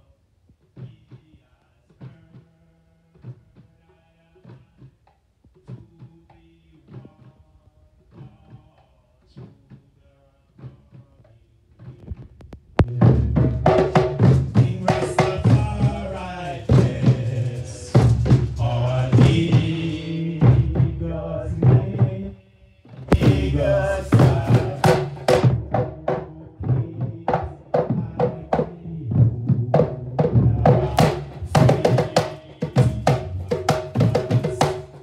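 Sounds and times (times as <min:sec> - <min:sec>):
hand drums beating: 0:11.8 - 0:22.3, 0:23.0 - 0:35.0
group chanting: 0:14.6 - 0:22.4, 0:23.0 - 0:28.9, 0:30.5 - 0:35.0.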